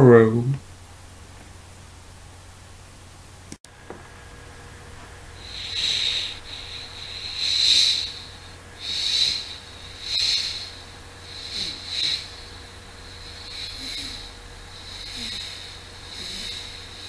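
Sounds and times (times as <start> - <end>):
person making hissing shh sounds: 5.4 - 17.0.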